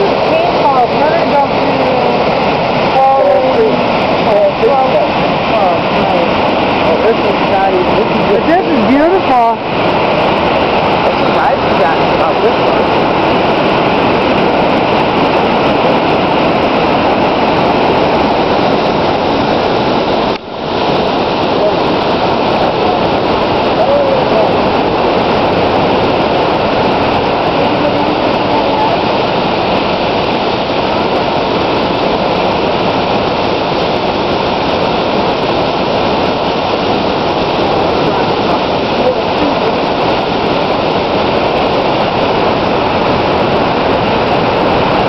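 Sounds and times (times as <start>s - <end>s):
waterfall and river rapids rushing: 0.0s - 45.0s.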